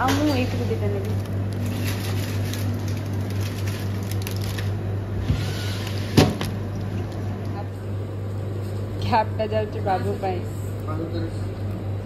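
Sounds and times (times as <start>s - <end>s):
steady low hum: 0.0s - 12.0s
plastic wrappers crinkling: 0.3s - 5.0s.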